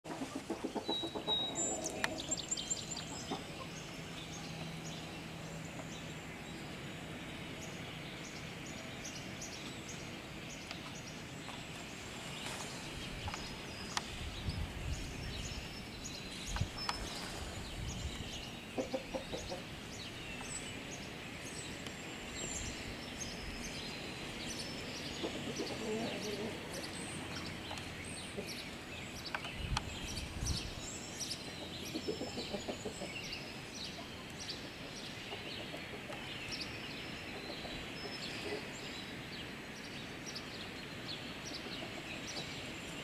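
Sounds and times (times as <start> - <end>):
chickens clucking: 0.1 - 4.0, 18.7 - 19.8, 25.1 - 28.7, 31.6 - 33.3, 34.0 - 36.5, 37.3 - 38.8.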